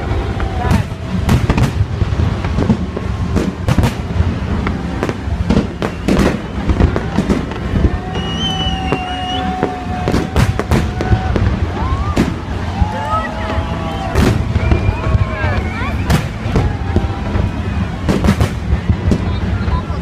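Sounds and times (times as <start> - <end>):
firework bursts and crackling: 0.0 - 20.0
long steady whistling tone: 4.6 - 18.2.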